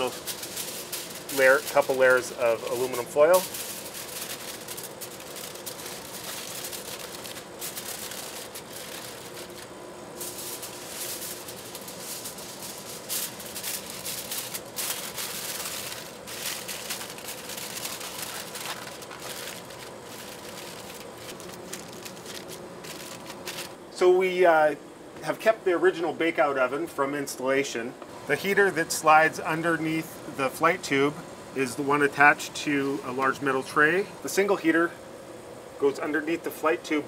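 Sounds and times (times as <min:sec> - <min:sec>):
aluminium foil crinkling: 0:00.0 - 0:23.8
faint steady hum: 0:00.0 - 0:37.0.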